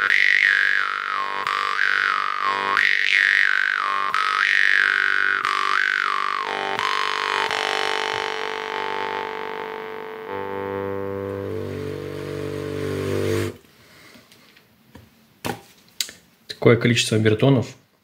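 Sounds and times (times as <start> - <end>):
jaw harp drone: 0.0 - 13.6.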